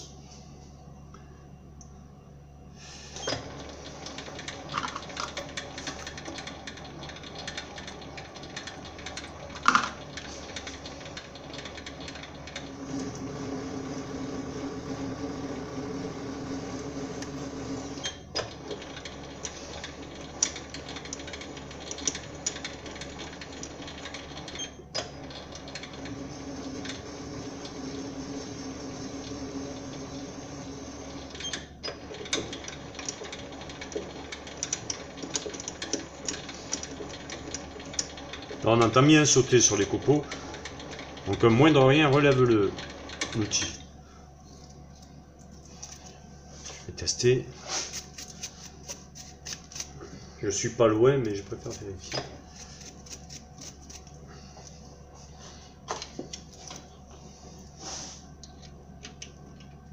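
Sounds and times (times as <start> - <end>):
lathe machine hum: 2.8 - 44.5.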